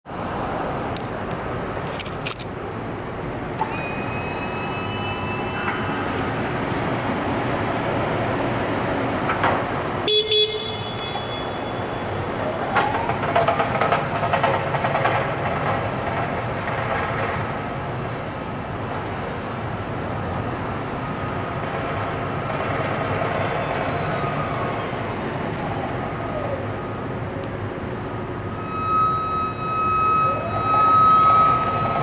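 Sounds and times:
electronic tone: 0:03.6 - 0:06.2, 0:28.5 - 0:32.0
steady hum: 0:28.2 - 0:32.0.

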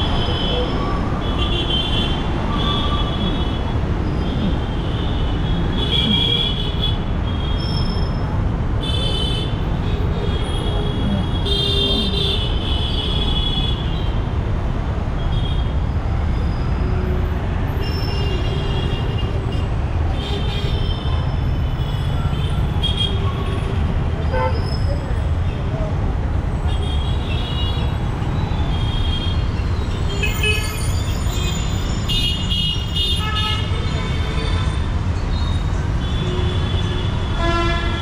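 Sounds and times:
traffic engines din: 0:00.0 - 0:38.0.

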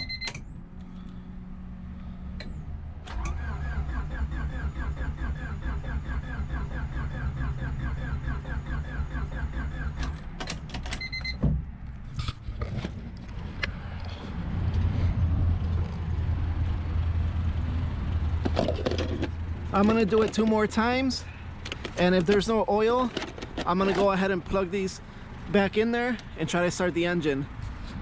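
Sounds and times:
low rumbling noise: 0:11.6 - 0:22.4.

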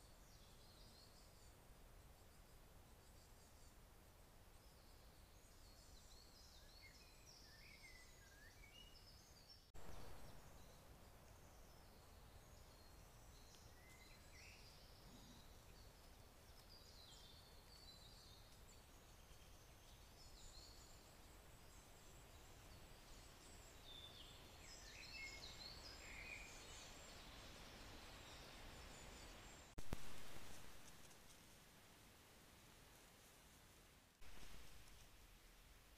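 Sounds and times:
low steady background hiss: 0:00.0 - 0:35.9
small birds chirping and trilling: 0:04.6 - 0:31.4.

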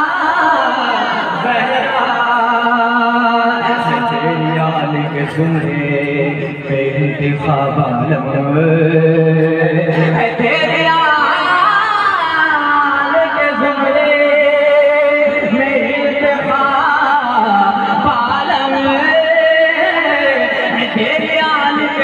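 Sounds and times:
man singing through a microphone: 0:00.0 - 0:22.0.

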